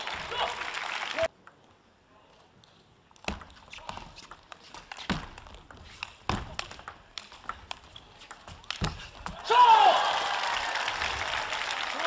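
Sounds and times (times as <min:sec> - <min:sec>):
rackets hitting ping pong ball: 0:03.2 - 0:09.4.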